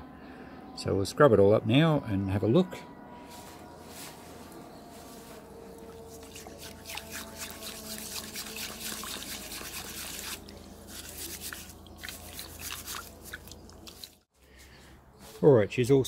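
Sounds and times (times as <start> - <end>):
steel wool scrubbing metal: 5.0 - 13.4
water splashing and dripping: 5.8 - 14.3.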